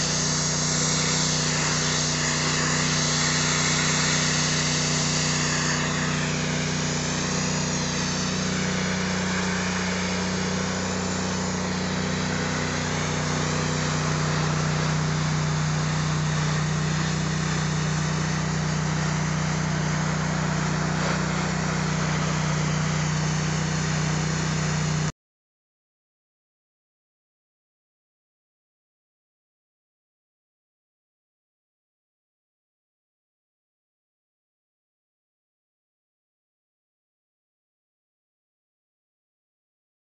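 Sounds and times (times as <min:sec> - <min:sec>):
pressure washer drone: 0:00.0 - 0:25.1
water spray hissing on brick: 0:00.0 - 0:25.1.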